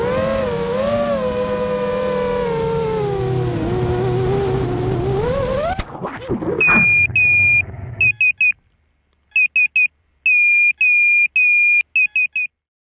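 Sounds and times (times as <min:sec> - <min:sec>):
high electronic beeps: 0:06.5 - 0:08.6.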